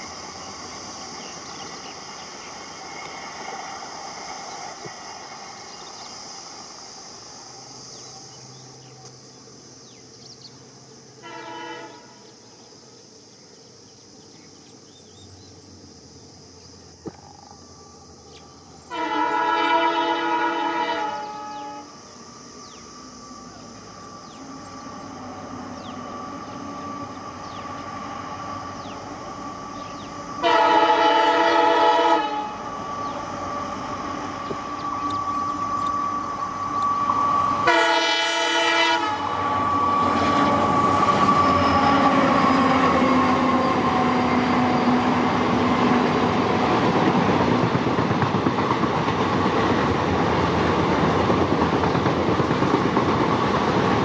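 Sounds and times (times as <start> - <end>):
diesel locomotive engine rumble: 0.0 - 9.5, 15.2 - 54.0
train horn blast: 11.2 - 12.2, 18.9 - 22.0, 30.4 - 32.7, 37.6 - 45.4.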